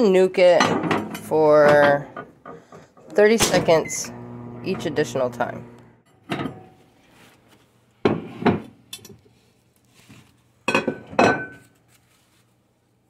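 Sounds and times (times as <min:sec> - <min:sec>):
ceramic plates clinking: 0:10.7 - 0:11.7.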